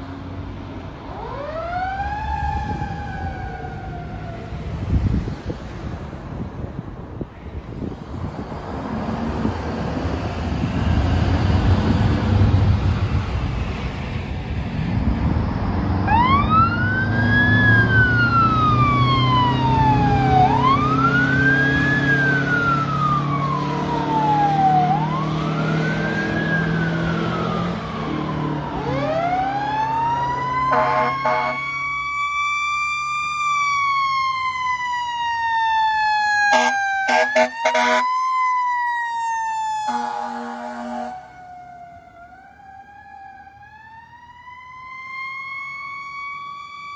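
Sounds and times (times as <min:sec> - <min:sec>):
fire truck diesel engine: 0:00.0 - 0:46.9
siren wailing: 0:01.0 - 0:04.8, 0:16.0 - 0:46.9
horn blasts: 0:30.7 - 0:31.6, 0:36.5 - 0:38.0, 0:39.9 - 0:41.3.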